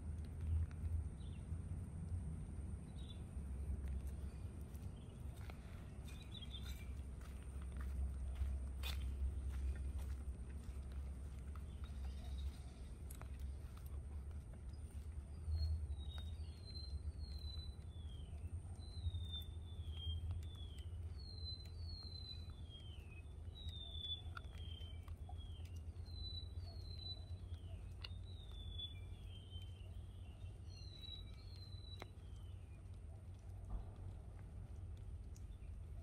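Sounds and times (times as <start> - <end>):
steady low rumble: 0.0 - 36.0
faint ticks: 15.6 - 29.8.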